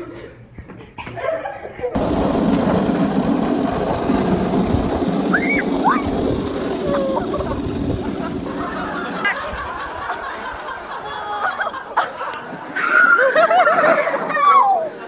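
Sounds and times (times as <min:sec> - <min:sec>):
board sliding over asphalt: 0:02.0 - 0:14.1
high squeals: 0:04.7 - 0:09.0.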